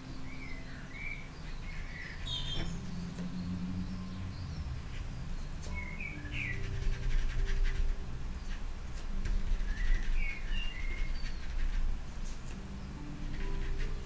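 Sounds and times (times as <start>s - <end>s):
bird chirping: 0.0s - 7.5s, 9.2s - 11.9s
low steady tones: 0.0s - 14.0s
paintbrush scratching on paper: 6.1s - 14.0s.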